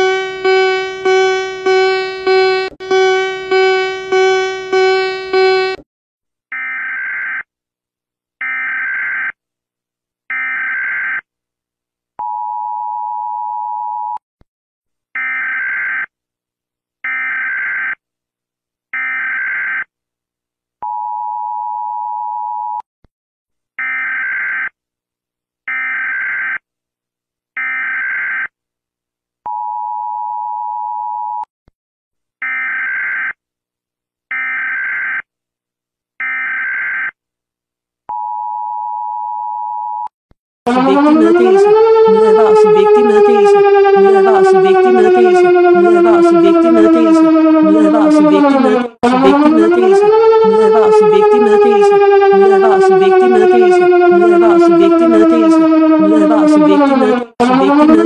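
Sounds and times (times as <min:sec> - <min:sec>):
data tone bursts: 0:00.0 - 0:05.8
two-note attention tone: 0:00.0 - 0:05.8.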